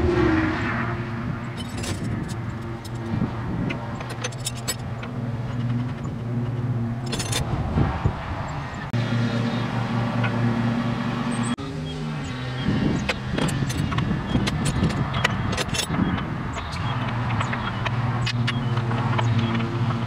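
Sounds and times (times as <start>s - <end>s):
wrench clinking on bolts: 1.6s - 3.1s, 3.7s - 7.5s, 13.1s - 19.7s.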